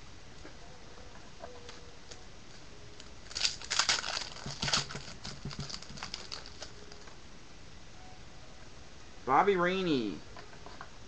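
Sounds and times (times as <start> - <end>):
card pack wrapper crinkling and tearing: 3.2 - 7.1.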